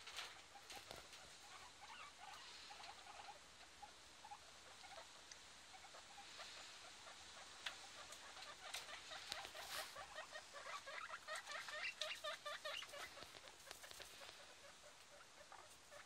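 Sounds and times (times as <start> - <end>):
guinea pigs squeaking: 0.0 - 16.0
crunching and rustling of hay: 9.0 - 14.5.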